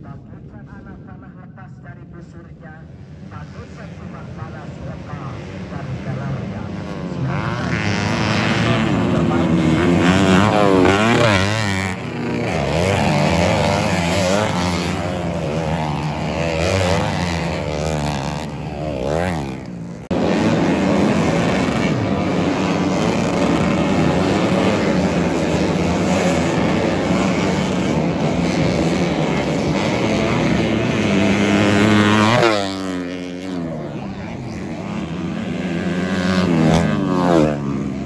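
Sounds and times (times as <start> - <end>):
motorcycle engines revving: 2.8 - 38.0.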